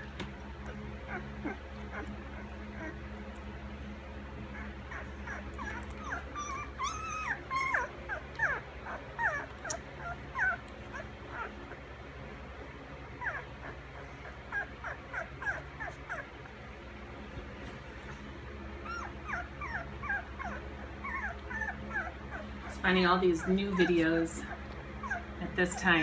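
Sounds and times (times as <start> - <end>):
puppies squeaking and whimpering: 0.4 - 3.5, 4.4 - 16.8, 18.0 - 26.0.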